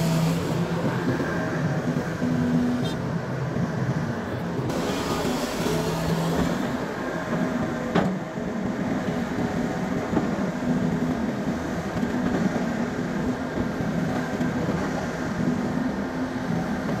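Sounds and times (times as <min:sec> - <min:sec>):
excavator diesel engine running: 0:00.0 - 0:17.0.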